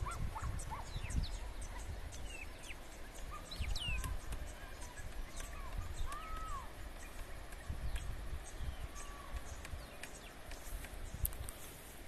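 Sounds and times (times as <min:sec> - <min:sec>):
birds chirping and calling: 0:00.0 - 0:12.0.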